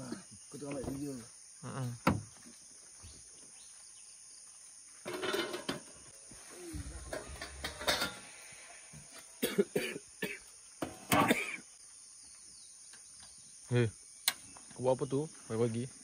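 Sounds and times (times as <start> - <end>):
person coughing: 9.4 - 10.4, 11.1 - 11.6.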